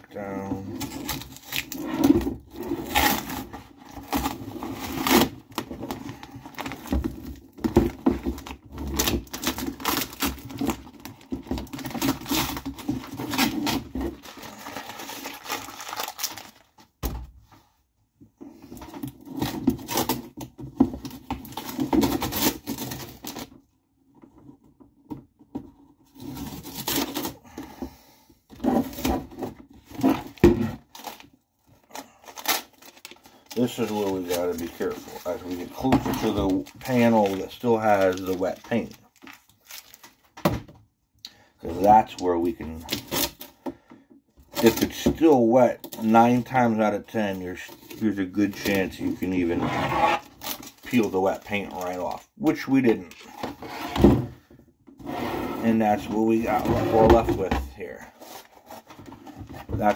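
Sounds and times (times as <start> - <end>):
tape peeling and crinkling: 30.0 - 40.4.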